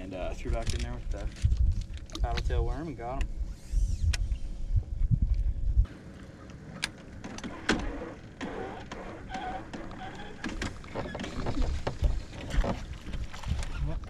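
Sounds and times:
wind rumble on microphone: 0:00.0 - 0:06.0, 0:10.4 - 0:14.0.

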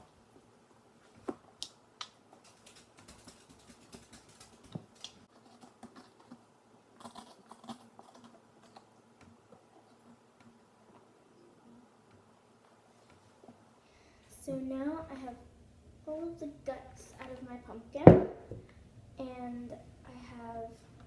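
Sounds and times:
pumpkin pulp clicks and scrapes: 0:02.4 - 0:08.9.

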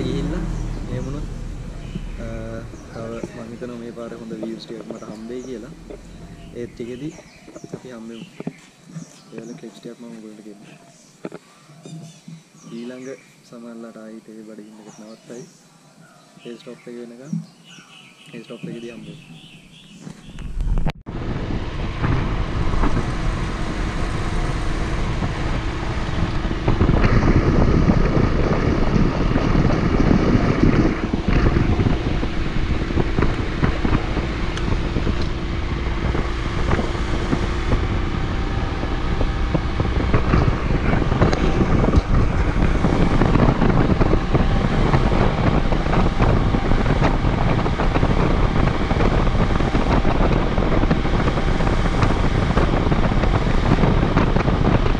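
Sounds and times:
motorcycle engine running: 0:00.0 - 0:08.3, 0:20.5 - 0:54.9
wind on microphone: 0:00.0 - 0:09.7, 0:18.5 - 0:54.9.

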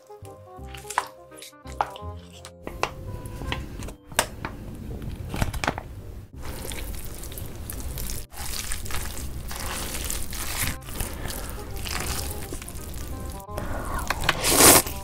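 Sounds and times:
wet squelching of noodles mixed: 0:06.4 - 0:15.0
squeeze bottle squirting sauce: 0:06.5 - 0:15.0.

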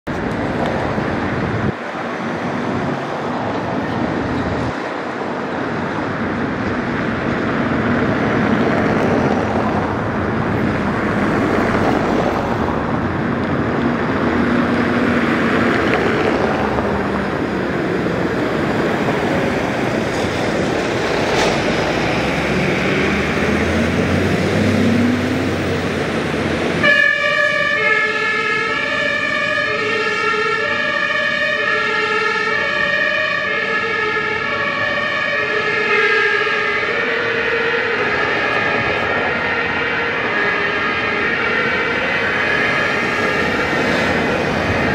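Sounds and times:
street traffic: 0:00.0 - 0:44.9
fire engine engines running: 0:00.1 - 0:44.9
two-tone emergency siren: 0:22.0 - 0:44.9.

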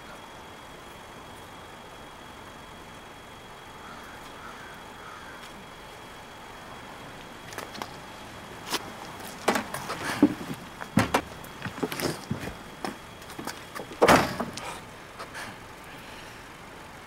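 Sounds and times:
faint outdoor background: 0:00.0 - 0:17.0
knocks bumps and rustles: 0:08.7 - 0:15.4.

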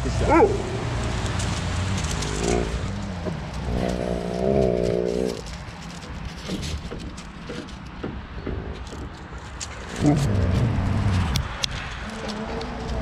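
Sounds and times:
husky whining and howling: 0:00.0 - 0:01.4, 0:02.0 - 0:03.0, 0:09.9 - 0:11.4.

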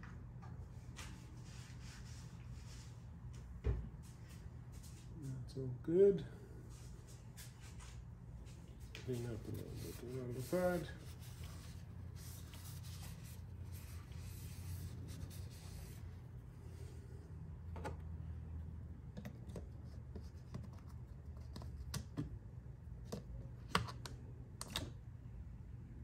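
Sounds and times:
low steady hum: 0:00.0 - 0:26.0
rag wiping plastic: 0:08.8 - 0:16.3.

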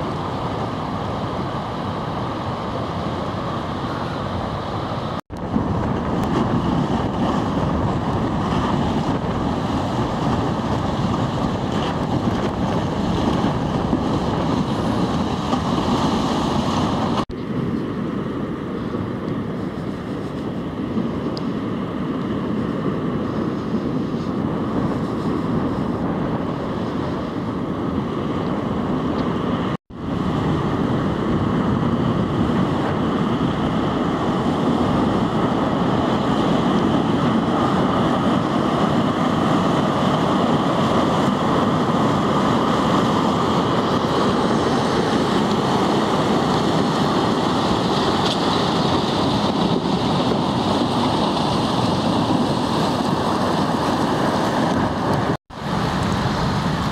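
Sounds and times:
ice grinding along ship hull: 0:37.5 - 0:55.4.

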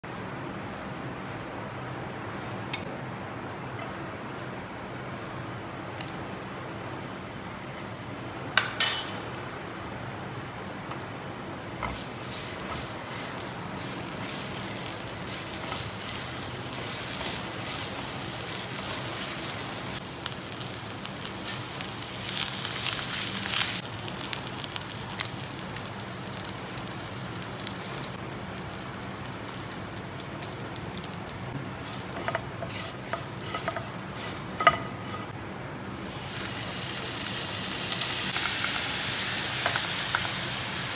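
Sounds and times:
garlic sizzling in oil: 0:03.8 - 0:40.9
spatula stirring and tapping pan: 0:32.0 - 0:35.3.

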